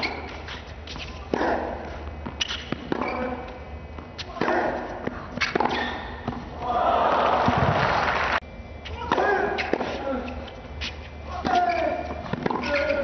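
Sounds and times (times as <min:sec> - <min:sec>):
tennis racket striking ball: 0:00.9 - 0:03.4, 0:04.0 - 0:06.6, 0:09.0 - 0:10.0
crowd applause: 0:06.8 - 0:08.4.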